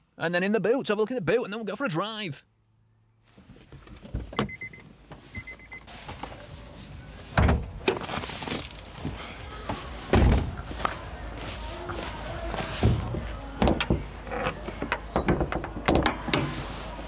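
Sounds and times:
footsteps on gravel: 8.0 - 10.0
car door thuds: 10.1 - 10.6.

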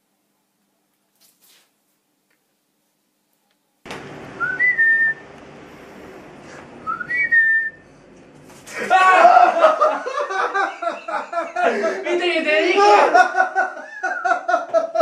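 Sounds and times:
person whistling: 4.4 - 5.2, 6.8 - 7.9
person laughing: 8.7 - 15.0.

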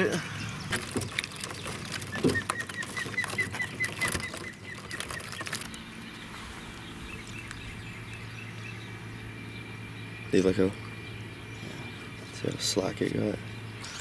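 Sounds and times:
bird chirping rapidly: 0.2 - 14.0
crabs clicking and scraping on mesh: 0.6 - 6.3.

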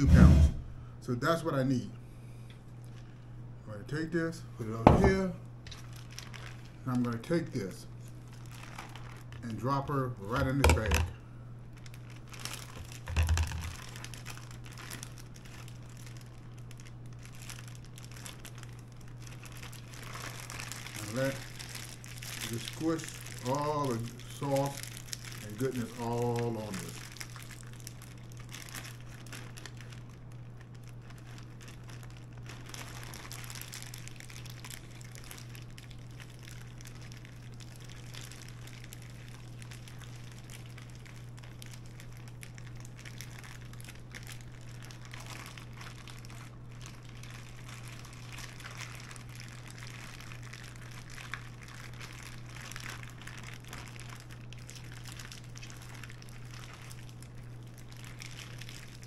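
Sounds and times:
low hum: 0.0 - 1.2
plastic bag crinkling and squelching: 4.0 - 59.0.

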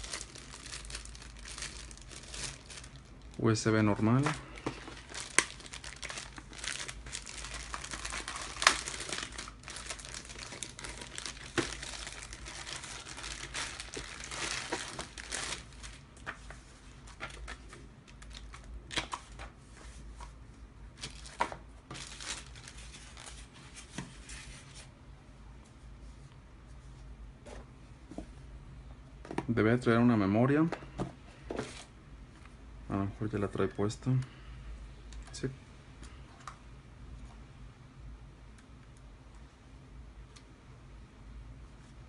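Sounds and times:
plastic bag crinkling: 0.0 - 16.3, 21.0 - 23.5.

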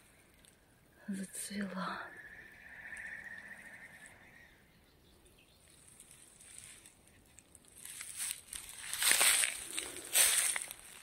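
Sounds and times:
crackles: 0.0 - 4.9, 5.6 - 11.0
footsteps through dry grass: 5.8 - 11.0.

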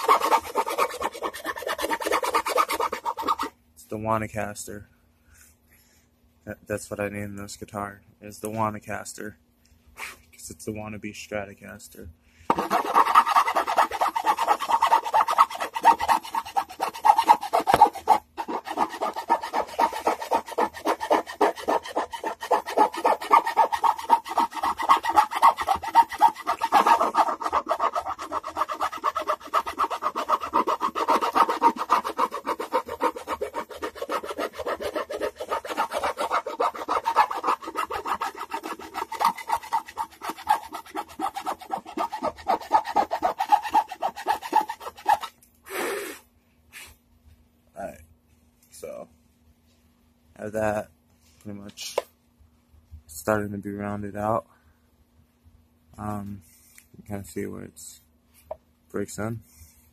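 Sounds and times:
rasp on wooden edge: 0.0 - 3.5, 12.5 - 45.3.

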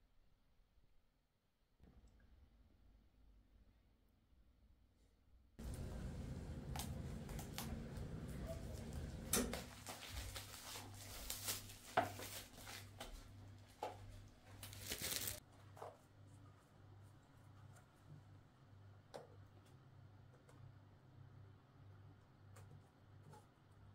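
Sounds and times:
paper rustling and crinkling: 5.6 - 16.0.

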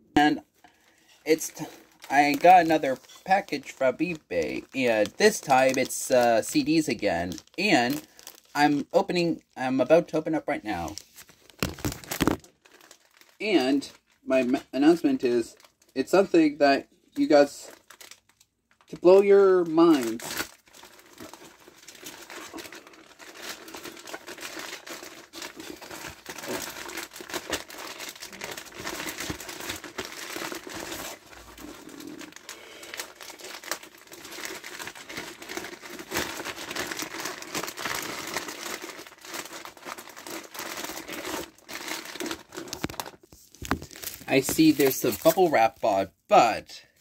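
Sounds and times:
bubble wrap crinkling and rustling: 0.7 - 9.2, 10.6 - 16.0, 17.1 - 46.1.

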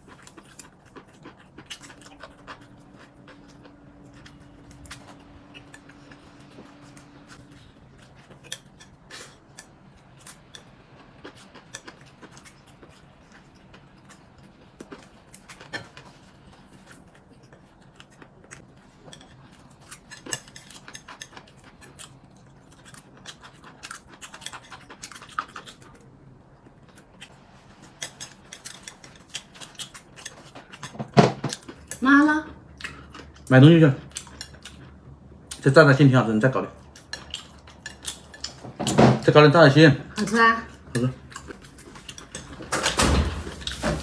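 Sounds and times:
faint low hum: 0.0 - 44.0.

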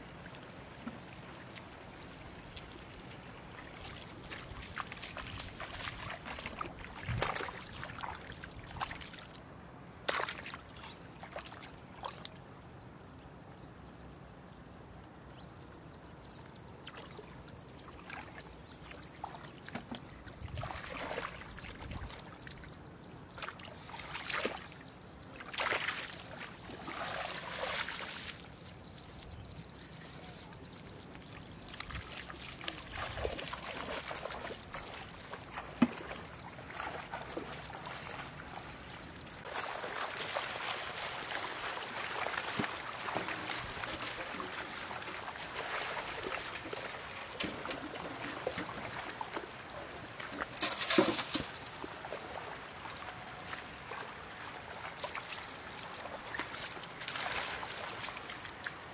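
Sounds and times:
water splashes: 0.0 - 12.4, 16.9 - 58.9
shallow water sloshing: 0.8 - 9.4, 23.3 - 58.8.

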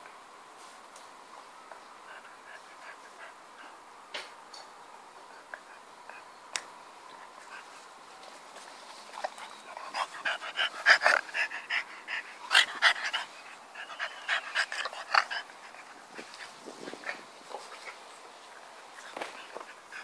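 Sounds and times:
dog panting: 2.0 - 3.8, 8.9 - 20.0.

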